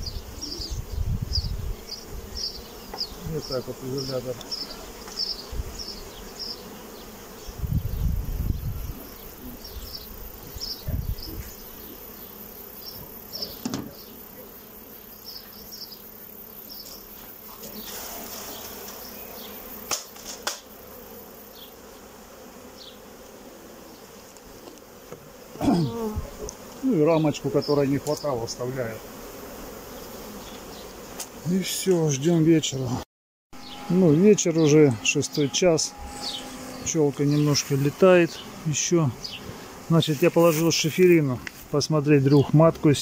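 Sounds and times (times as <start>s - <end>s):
honeybees buzzing: 0.0s - 43.0s
sharp knocks of hive frame: 2.9s - 3.1s, 13.0s - 14.0s, 19.8s - 20.8s, 24.6s - 26.8s.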